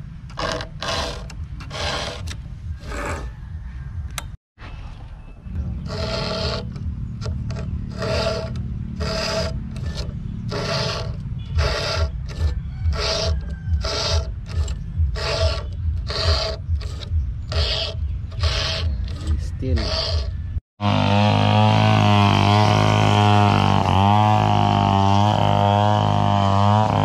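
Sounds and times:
file rasping on chainsaw chain: 0:00.3 - 0:03.3, 0:05.6 - 0:27.0.

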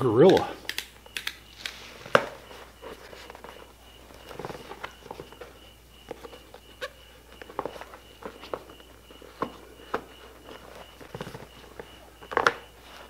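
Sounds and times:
welding helmet clicks and taps: 0:00.2 - 0:02.3.

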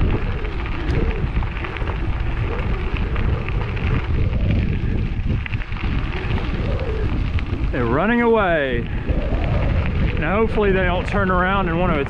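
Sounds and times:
bicycle tyres crunching on gravel: 0:00.0 - 0:12.0
wind rumble on microphone: 0:00.0 - 0:12.0.

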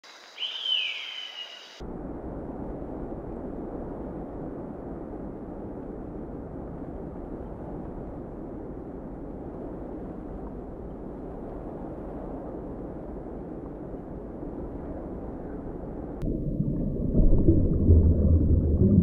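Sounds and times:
bird call: 0:00.3 - 0:01.8
low rushing noise: 0:01.7 - 0:19.0.

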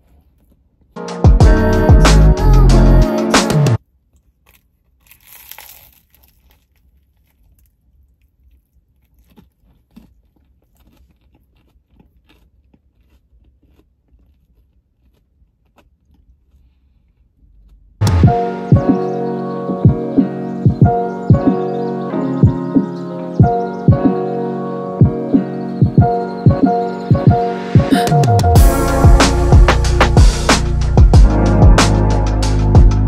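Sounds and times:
pizza crunch: 0:00.0 - 0:01.0, 0:03.9 - 0:18.6
music: 0:01.0 - 0:03.8, 0:18.0 - 0:33.0
chewing clicks: 0:04.1 - 0:17.9.

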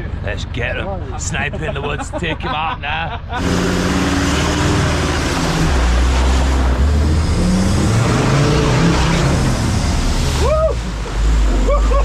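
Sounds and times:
drive noise: 0:00.0 - 0:12.0
off-road vehicle engine revving: 0:00.0 - 0:12.0
rising and falling whoop: 0:10.2 - 0:12.0.

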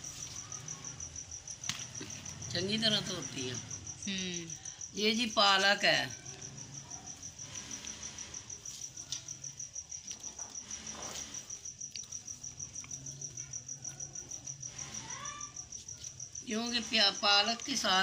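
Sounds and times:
insect chirping: 0:00.0 - 0:18.0.

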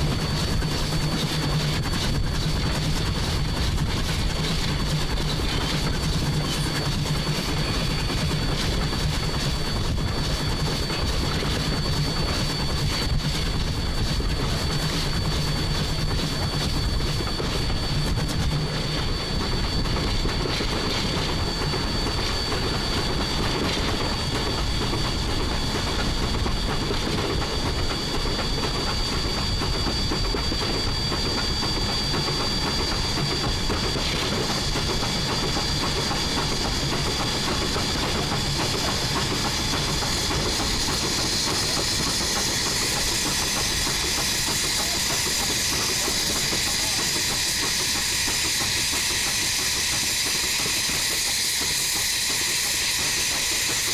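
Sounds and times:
steam hissing: 0:00.0 - 0:53.9
steam locomotive wheels rumbling: 0:00.0 - 0:53.9.

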